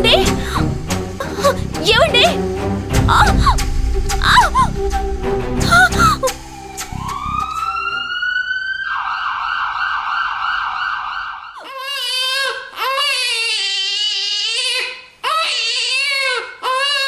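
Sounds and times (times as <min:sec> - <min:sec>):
baby crying: 0:00.0 - 0:02.4, 0:03.0 - 0:03.6, 0:11.6 - 0:17.0
emergency vehicle siren warbling: 0:03.1 - 0:11.6.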